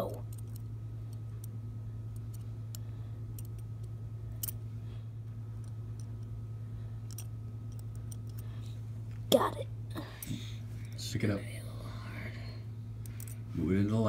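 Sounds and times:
steady low hum: 0.0s - 14.0s
metal forceps and scissors clicking: 7.0s - 8.5s.

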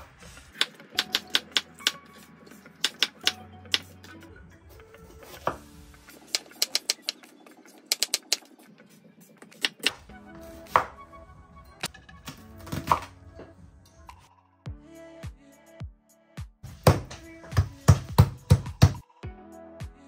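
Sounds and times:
background music: 0.0s - 20.0s.

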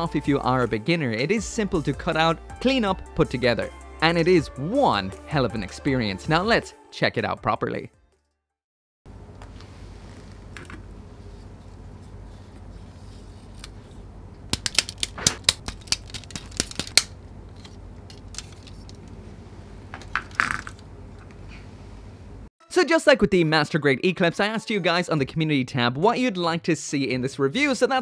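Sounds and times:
steady low hum: 9.1s - 22.5s
plastic parts clicking and snapping: 14.5s - 19.1s.

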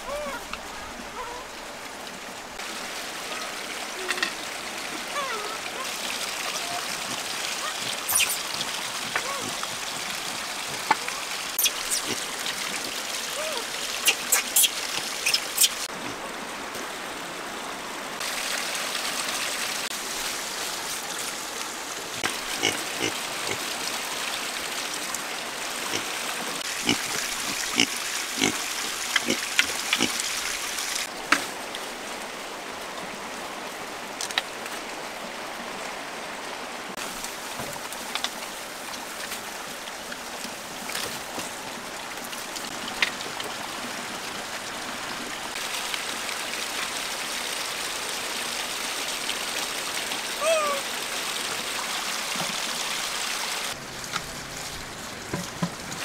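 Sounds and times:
running water hiss: 0.0s - 35.9s
rustling leaves: 0.0s - 56.0s
animals grunting: 22.2s - 23.6s, 26.7s - 30.2s.

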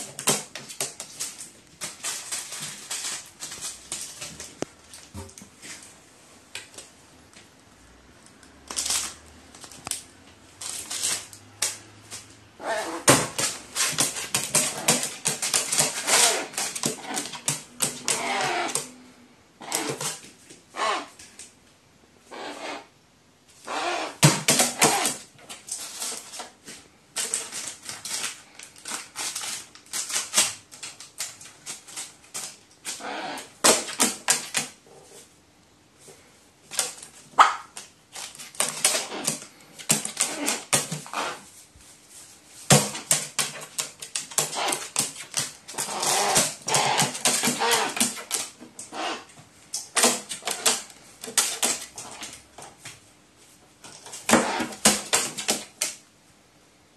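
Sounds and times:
crow pecking crinkling paper: 0.0s - 6.0s, 8.6s - 19.0s, 23.7s - 35.3s, 36.6s - 52.9s, 53.8s - 56.0s
crow calling: 20.7s - 21.2s.

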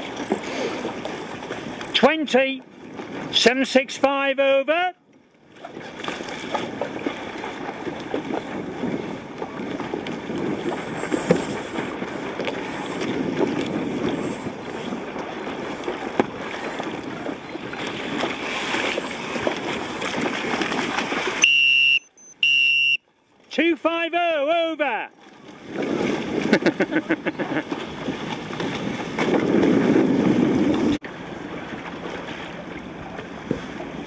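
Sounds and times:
water splashing against boat hull: 0.0s - 3.7s, 5.0s - 24.1s, 24.8s - 34.0s
wind on microphone: 5.7s - 21.4s, 25.4s - 31.6s
short high-pitched electronic beeps: 21.4s - 23.0s.

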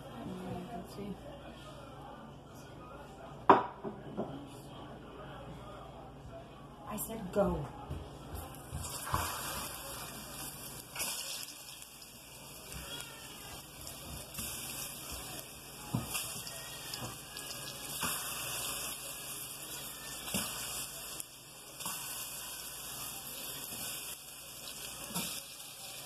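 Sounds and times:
food sizzling in hot oil: 8.8s - 26.0s.

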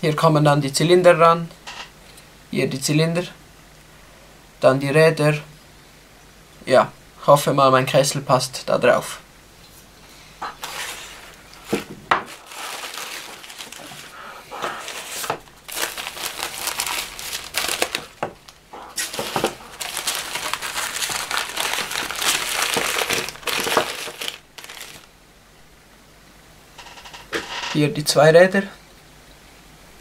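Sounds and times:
packing paper rustling and crinkling: 10.5s - 25.1s.

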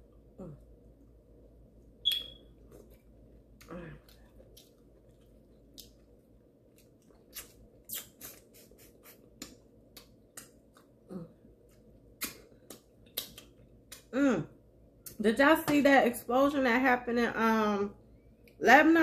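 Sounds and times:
person humming: 0.4s - 0.6s, 11.1s - 11.4s
wet lip smacks and sucking: 6.8s - 11.0s, 11.6s - 14.1s.

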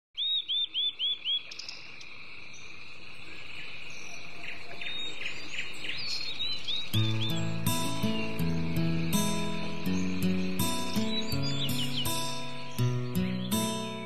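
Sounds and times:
birds chirping: 0.2s - 14.0s
insect trill: 1.0s - 14.0s.

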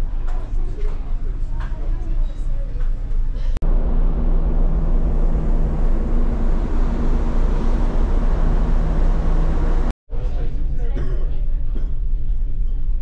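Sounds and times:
ferry engines droning: 3.6s - 10.0s.

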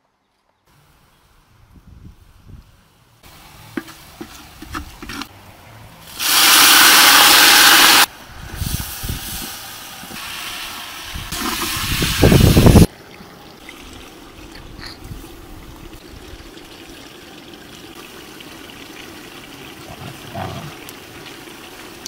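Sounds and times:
water rushing into cooking pot: 6.1s - 22.0s.

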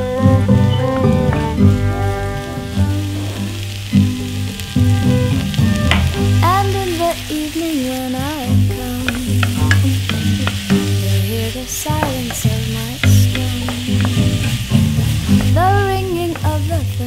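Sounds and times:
background music: 0.0s - 17.0s
food sizzling in frying pan: 0.0s - 17.0s
stirring clicks and scrapes on pan: 4.6s - 6.5s, 7.3s - 16.8s.

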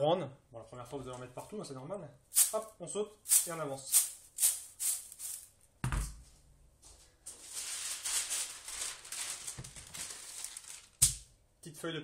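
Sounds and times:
baking tray knocking on worktop: 5.8s - 6.2s.

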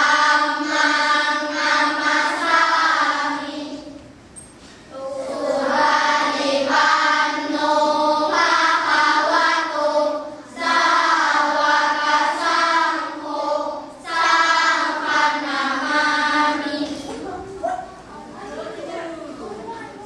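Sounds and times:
children chanting in unison: 0.0s - 4.0s, 4.9s - 17.9s.

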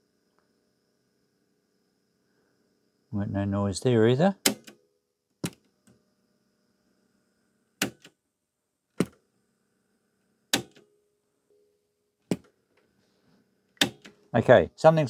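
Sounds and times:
faint steady hum: 0.0s - 15.0s
cassette deck button clicks: 10.6s - 10.8s, 13.8s - 14.2s.

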